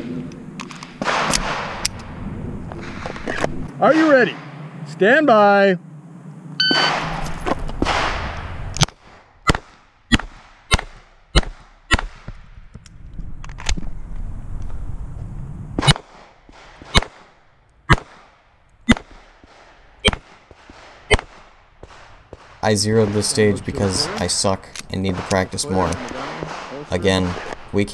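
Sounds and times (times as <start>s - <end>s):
pistol shots: 0.9s - 1.8s, 15.8s - 24.2s, 25.0s - 27.7s.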